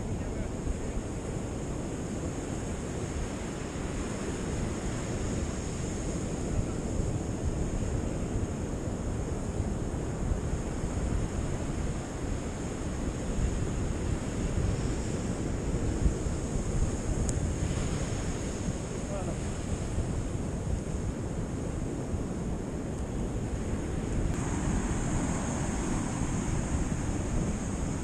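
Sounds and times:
wind buffeting microphone: 0:00.0 - 0:28.0
surf breaking on beach: 0:10.5 - 0:21.2, 0:23.9 - 0:28.0.

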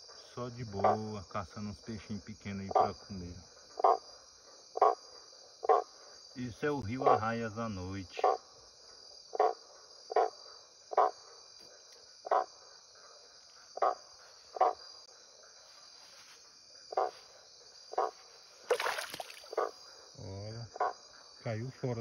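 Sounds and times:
crickets and insects chirping: 0:00.0 - 0:22.0
water splash: 0:18.7 - 0:19.6.

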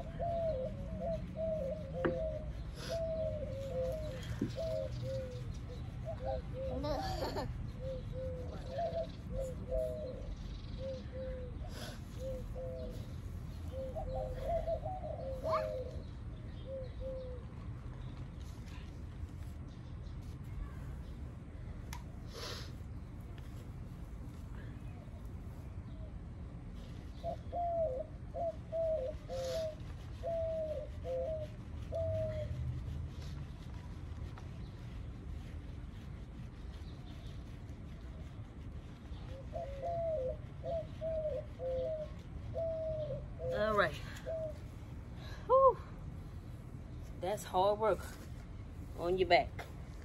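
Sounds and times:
dove cooing: 0:00.0 - 0:17.7, 0:26.9 - 0:33.3, 0:39.1 - 0:46.0
low background rumble: 0:00.0 - 0:50.0.

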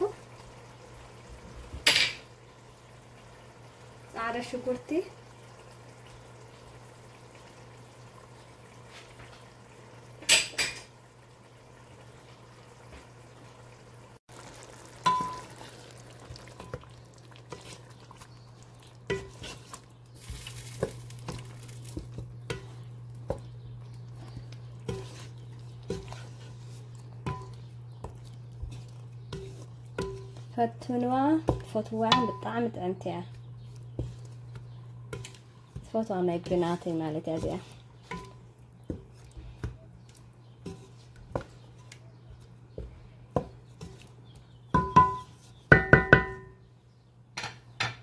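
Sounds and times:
low steady hum: 0:13.5 - 0:45.4
metal fork scraping a pot: 0:24.8 - 0:27.6, 0:28.6 - 0:30.4.

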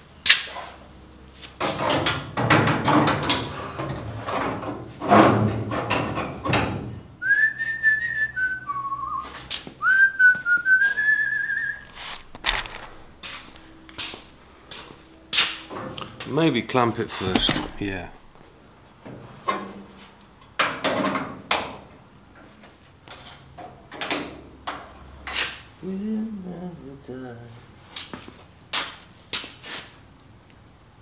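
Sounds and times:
person whistling a tune: 0:07.2 - 0:11.8
rustling handling noise: 0:11.7 - 0:15.0, 0:17.1 - 0:18.5
clicks and knocks: 0:11.8 - 0:14.2, 0:17.2 - 0:18.4.

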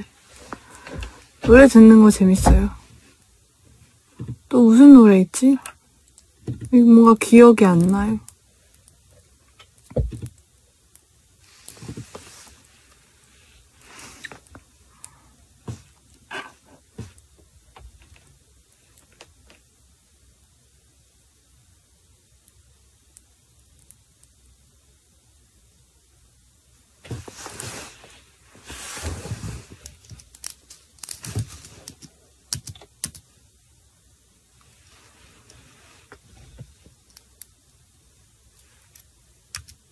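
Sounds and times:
soft breathy hisses: 0:00.0 - 0:01.4, 0:11.4 - 0:16.8, 0:27.0 - 0:29.9, 0:34.6 - 0:36.6
rubbing on phone microphone: 0:11.4 - 0:14.4, 0:27.0 - 0:29.8, 0:34.7 - 0:36.6.

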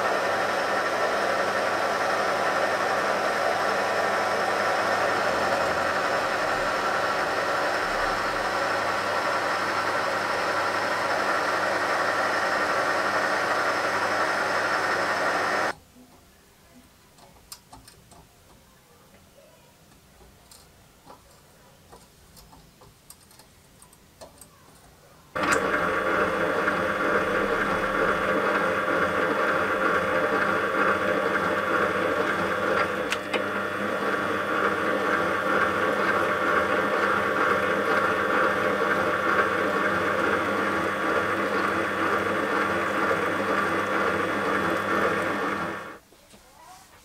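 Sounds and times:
metal lathe whining: 0:00.0 - 0:15.7, 0:25.4 - 0:46.0.

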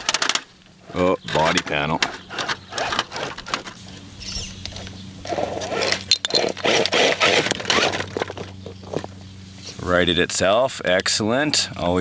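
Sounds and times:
low steady hum: 0:00.0 - 0:12.0
rc car scraping against rock: 0:00.8 - 0:03.8, 0:05.2 - 0:08.5.

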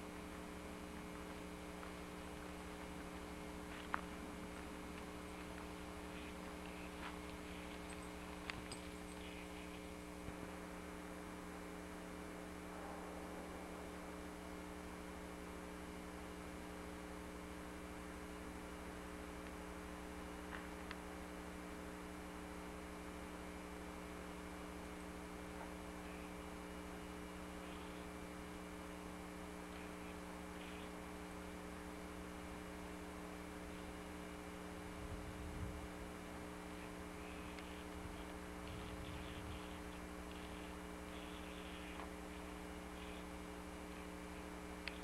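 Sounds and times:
electrical mains hum: 0:00.0 - 0:45.0
faint clicks: 0:37.3 - 0:40.7, 0:44.8 - 0:45.0.

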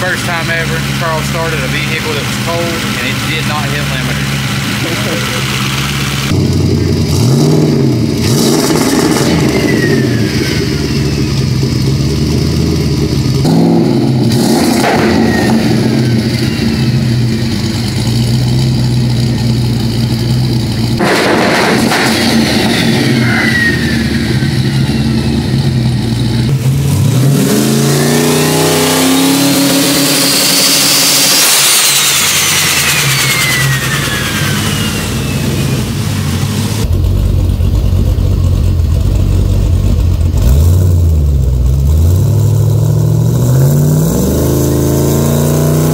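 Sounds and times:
engine idling and revving: 0:00.0 - 0:45.9
turbo whistle: 0:09.0 - 0:11.5, 0:30.2 - 0:35.9.

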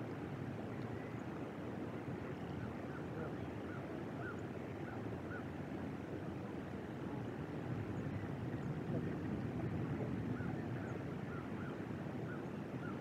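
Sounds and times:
wind rumble on microphone: 0:04.6 - 0:13.0.

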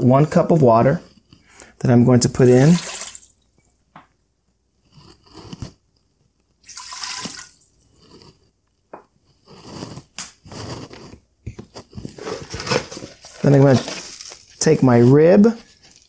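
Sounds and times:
water pouring into steel pot: 0:02.4 - 0:03.3, 0:06.6 - 0:07.7.

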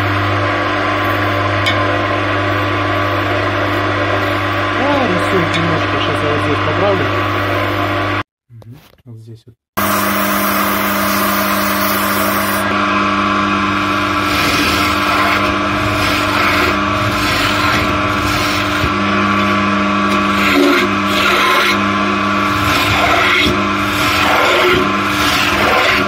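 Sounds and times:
wood lathe motor hum: 0:00.0 - 0:08.2, 0:09.8 - 0:26.0
chisel scraping wood: 0:13.8 - 0:26.0.

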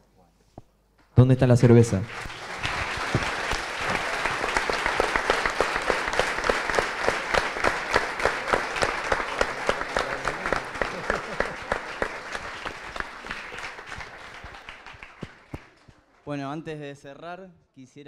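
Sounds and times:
audience applauding: 0:01.6 - 0:16.6
louder single claps: 0:02.1 - 0:16.0.

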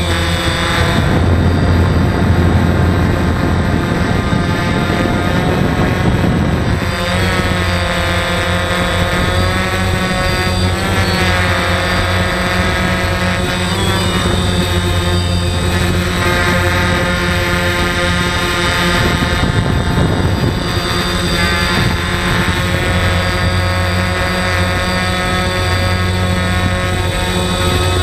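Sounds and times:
rushing noise: 0:00.0 - 0:08.1
drone motors whining: 0:00.0 - 0:28.0.

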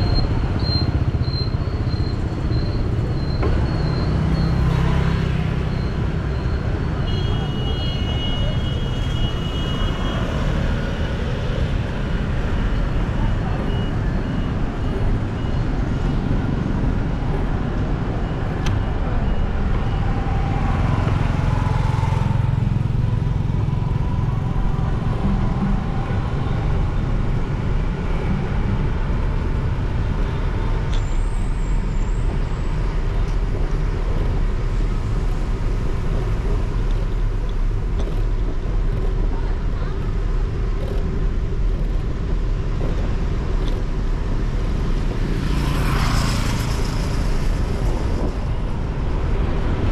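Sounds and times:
motorcycle engine and road noise: 0:00.0 - 0:49.9
traffic passing: 0:00.0 - 0:49.9.

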